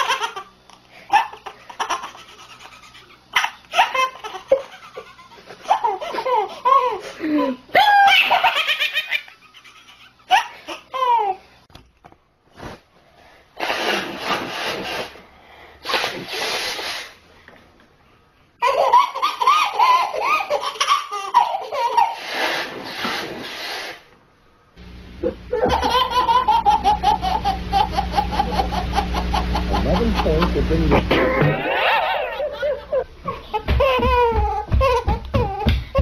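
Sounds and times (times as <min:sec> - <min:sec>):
baby laughing: 0:00.0 - 0:00.5, 0:01.1 - 0:11.4, 0:18.6 - 0:22.7, 0:25.2 - 0:36.0
second baby laughing: 0:00.0 - 0:11.4, 0:18.6 - 0:23.1, 0:25.2 - 0:36.0.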